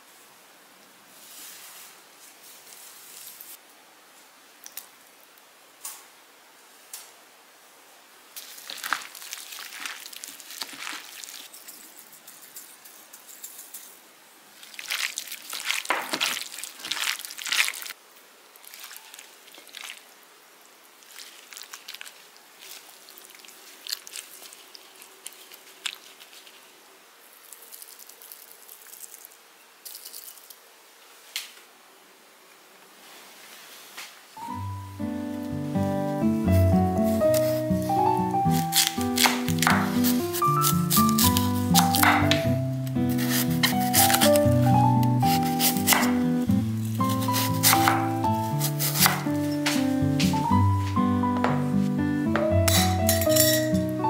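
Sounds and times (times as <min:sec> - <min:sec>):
wet squishing and crunching: 0:08.4 - 0:11.6, 0:14.6 - 0:18.0, 0:18.6 - 0:20.1, 0:21.0 - 0:26.7, 0:38.5 - 0:42.4.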